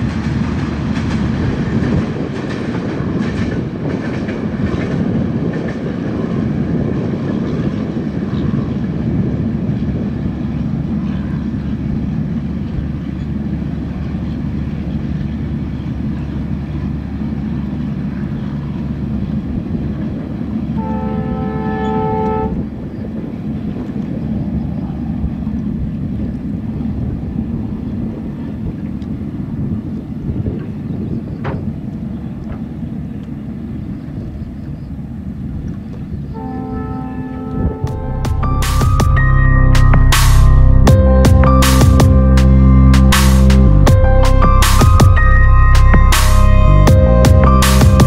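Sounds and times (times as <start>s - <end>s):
boat engine drone: 0.0s - 48.0s
two-tone locomotive horn: 20.6s - 22.9s, 36.2s - 48.0s.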